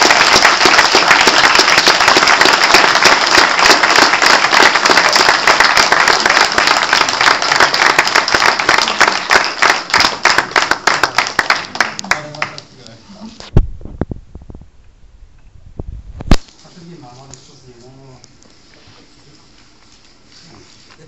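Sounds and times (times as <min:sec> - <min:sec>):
audience applause: 0:00.0 - 0:12.7.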